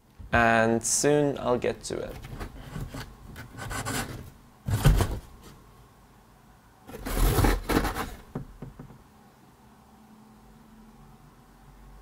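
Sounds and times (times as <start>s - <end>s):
cardboard flaps rustling: 2.1s - 5.6s, 6.9s - 8.6s.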